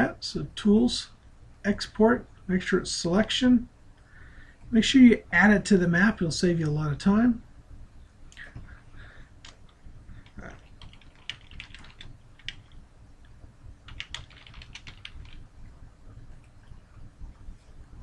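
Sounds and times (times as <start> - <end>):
typing on a computer keyboard: 9.4 - 12.8, 13.9 - 15.4.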